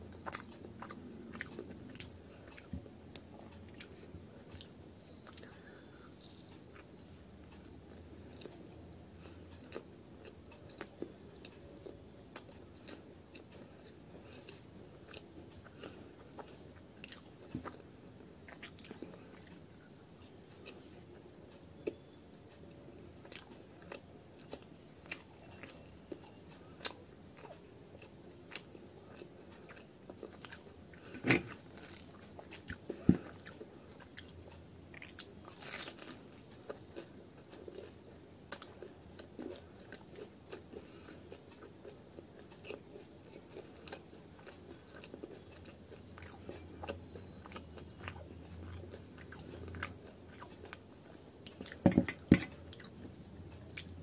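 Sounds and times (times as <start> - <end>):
person biting and chewing: 29.6 - 34.3, 35.0 - 36.8.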